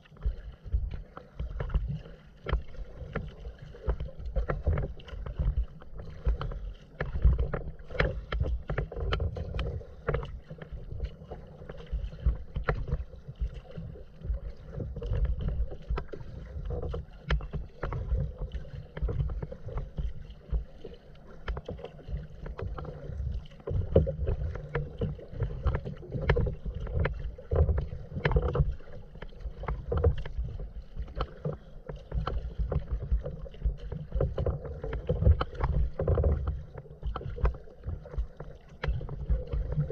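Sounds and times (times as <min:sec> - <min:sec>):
low rumble of water: 0:00.0 - 0:39.9
water lapping against kayak hull: 0:00.0 - 0:39.9.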